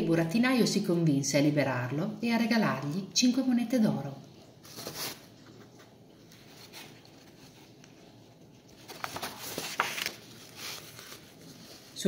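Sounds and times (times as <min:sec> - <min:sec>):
book pages rustling: 0:04.6 - 0:12.0.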